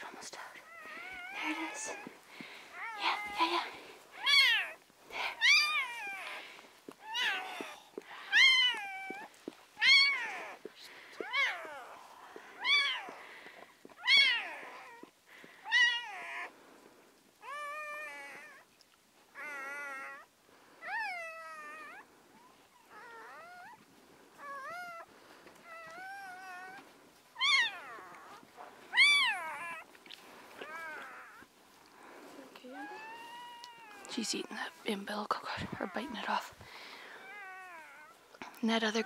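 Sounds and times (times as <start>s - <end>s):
newborn puppy squealing: 0.6s - 3.5s, 4.1s - 6.4s, 7.0s - 12.0s, 12.6s - 13.2s, 14.0s - 16.5s, 17.4s - 18.7s, 19.4s - 23.8s, 24.4s - 29.9s, 30.6s - 31.5s, 32.7s - 34.2s, 35.7s - 36.4s, 37.1s - 38.2s.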